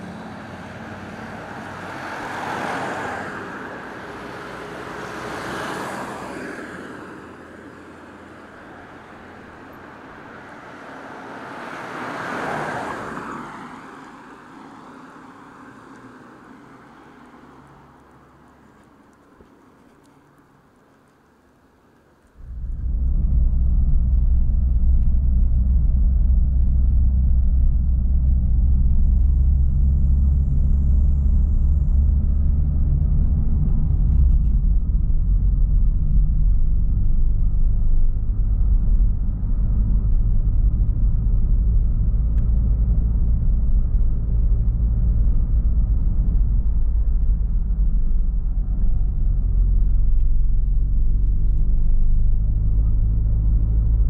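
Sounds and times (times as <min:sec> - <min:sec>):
vehicle engine running: 0:22.3 - 0:54.0.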